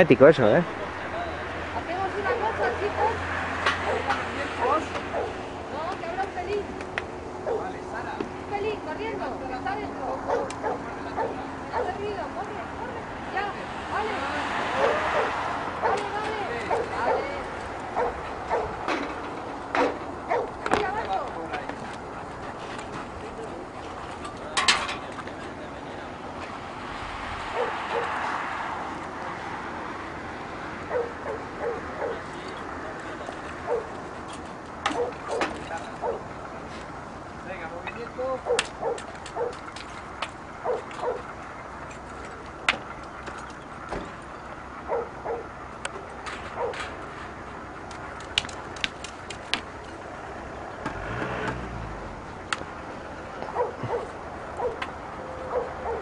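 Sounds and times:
dog barking: 0:02.2 - 0:05.4, 0:07.4 - 0:07.7, 0:10.3 - 0:12.0, 0:14.7 - 0:17.4, 0:18.0 - 0:18.8, 0:20.3 - 0:20.6, 0:27.5 - 0:28.2, 0:30.9 - 0:32.3, 0:33.6 - 0:33.9, 0:34.9 - 0:36.2, 0:38.4 - 0:39.6, 0:40.6 - 0:41.3, 0:44.9 - 0:45.5, 0:46.6 - 0:46.8, 0:53.5 - 0:54.8, 0:55.4 - 0:56.0.

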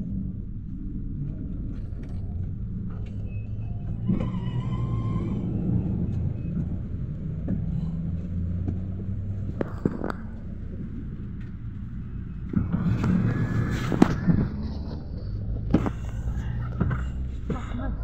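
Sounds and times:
engine and road rumble: 0:00.0 - 0:18.0
short high squeal: 0:03.4 - 0:05.6.

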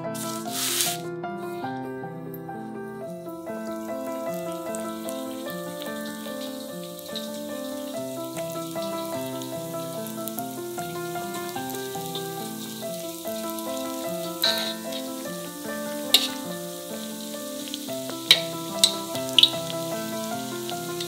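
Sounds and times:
background music: 0:00.0 - 0:21.0
dough sizzling in oil: 0:00.1 - 0:01.0, 0:03.0 - 0:21.0
metal tongs clicking on wok: 0:14.4 - 0:15.2, 0:16.1 - 0:16.5, 0:18.1 - 0:19.7.

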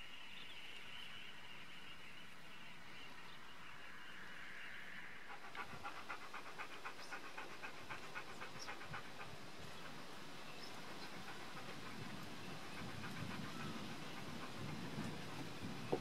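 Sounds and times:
faint outdoor background: 0:00.0 - 0:16.0.

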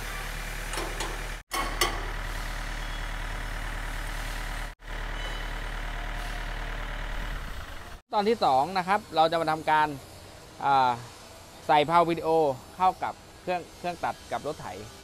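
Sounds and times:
tractor diesel engine idling: 0:00.0 - 0:08.0.

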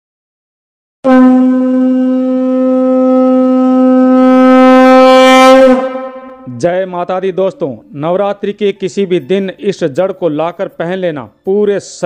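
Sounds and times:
conch shell blown: 0:01.0 - 0:06.6.

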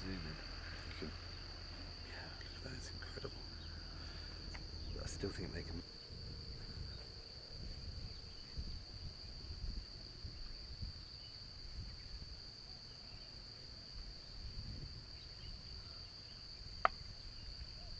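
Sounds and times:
low background rumble: 0:00.0 - 0:11.1
insects droning: 0:00.0 - 0:17.9.

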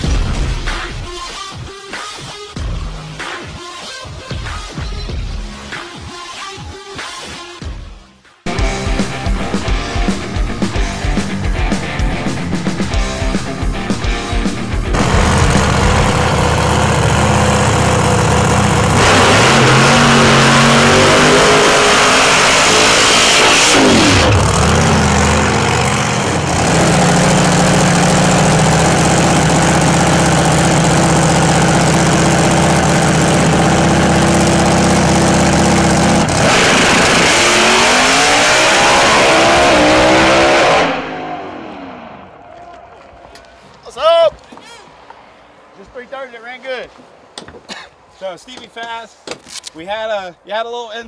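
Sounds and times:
drag car engine revving: 0:08.5 - 0:42.3.

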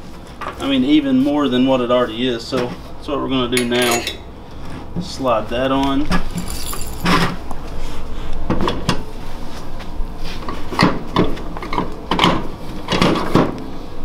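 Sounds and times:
light metal clinks: 0:03.6 - 0:04.3, 0:06.4 - 0:07.3.

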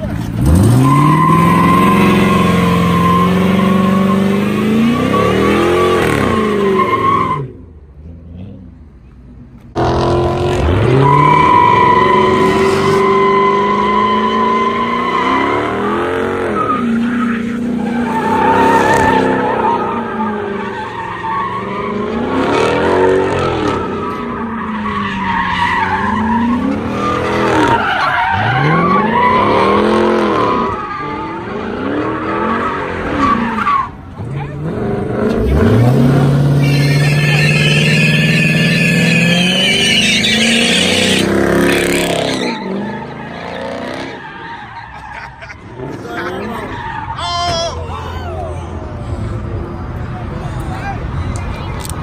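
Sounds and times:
tyres squealing and skidding: 0:00.0 - 0:07.7, 0:10.4 - 0:52.0
car engine revving: 0:00.0 - 0:08.8, 0:09.6 - 0:47.1.

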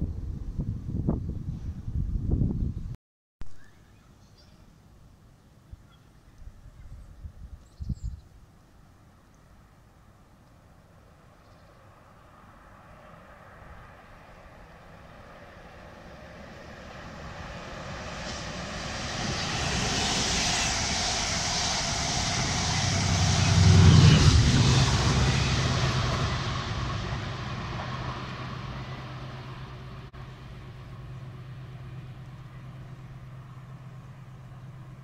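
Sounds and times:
locomotive engine drone: 0:11.8 - 0:35.0
train wheel and rail noise: 0:11.8 - 0:35.0.

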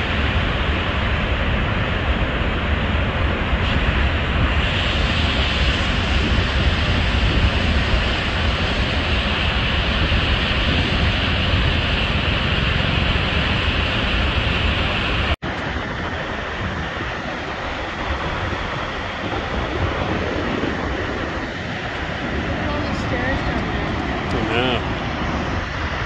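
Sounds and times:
wind rumbling on microphone: 0:00.0 - 0:26.0
waterfall rushing: 0:20.7 - 0:26.0.

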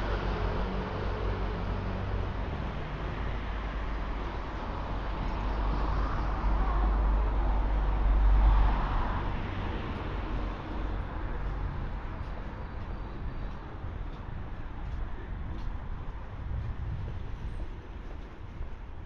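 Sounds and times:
street traffic noise: 0:00.0 - 0:19.0.

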